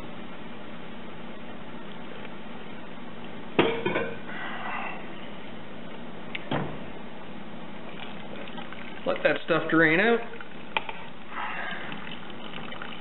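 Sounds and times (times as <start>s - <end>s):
liquid draining and splashing: 7.8s - 13.0s.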